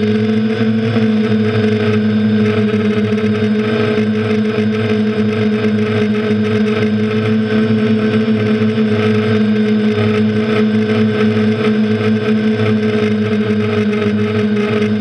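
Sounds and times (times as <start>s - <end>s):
drone propellers whirring: 0.0s - 15.0s.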